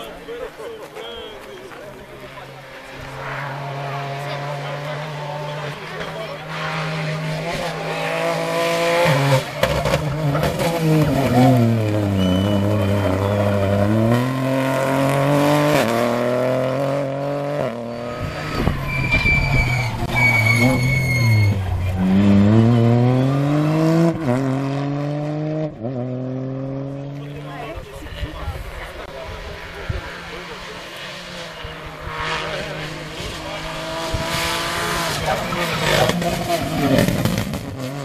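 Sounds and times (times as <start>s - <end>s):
rally car engine revving: 1.5s - 38.0s
short high-pitched squeals: 17.8s - 21.8s.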